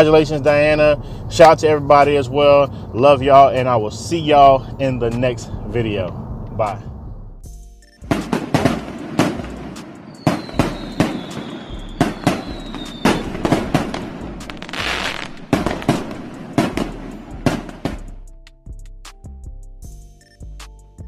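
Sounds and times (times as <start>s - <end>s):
fireworks bangs and crackles: 8.1s - 18.2s
falling firework whistle: 8.5s - 16.9s.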